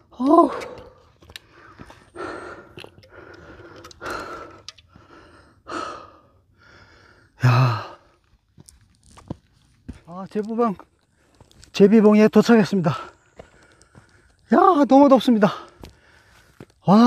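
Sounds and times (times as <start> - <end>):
man breathing heavily: 0.0 - 8.5, 12.8 - 14.5, 15.4 - 16.8
man sighing: 0.1 - 1.0, 7.4 - 8.0.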